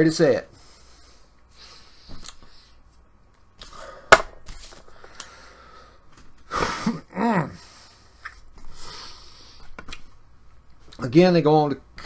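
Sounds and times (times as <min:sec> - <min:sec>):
man breathing: 0:00.5 - 0:02.9, 0:03.6 - 0:04.2, 0:04.8 - 0:09.8.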